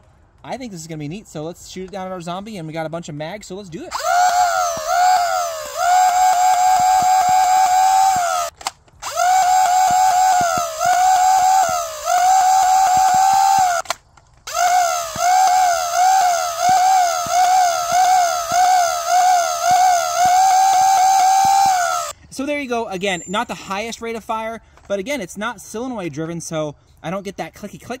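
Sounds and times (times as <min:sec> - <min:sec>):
blaster flywheel motors whining: 0:03.9 - 0:22.1
blaster pusher clicks: 0:03.9 - 0:22.1.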